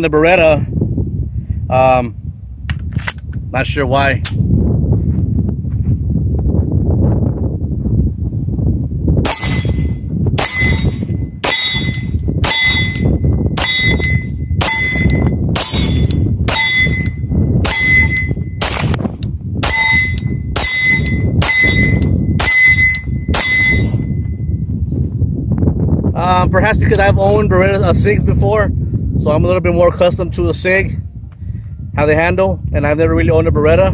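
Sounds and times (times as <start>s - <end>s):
wind buffeting microphone: 0.0s - 33.9s
steel plate target ringing: 9.2s - 18.8s, 19.6s - 24.5s.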